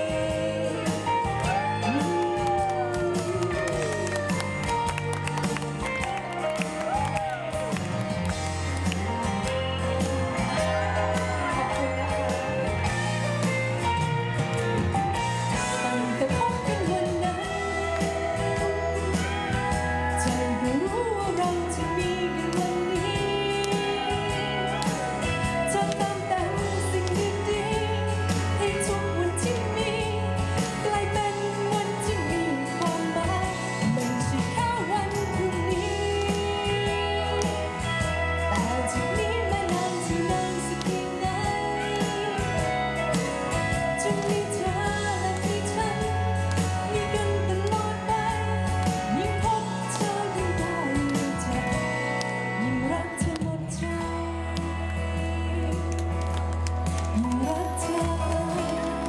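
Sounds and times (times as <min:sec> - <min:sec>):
woman singing into microphone: 0:00.0 - 0:04.5, 0:15.5 - 0:56.4, 0:57.1 - 0:59.0
guitar: 0:00.0 - 0:59.0.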